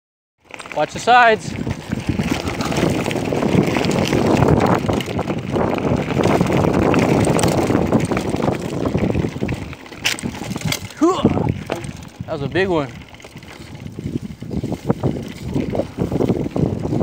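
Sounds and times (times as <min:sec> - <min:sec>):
bike rattling: 0:00.4 - 0:17.0
bike tyres crunching on gravel: 0:00.4 - 0:17.0.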